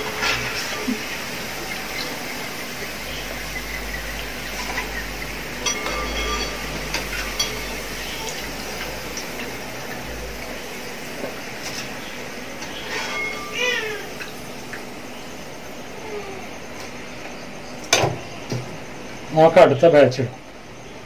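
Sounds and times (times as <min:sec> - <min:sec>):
potatoes sizzling in hot oil: 0:00.0 - 0:15.9
metal skimmer clinking on pot: 0:04.6 - 0:08.9, 0:12.6 - 0:14.0.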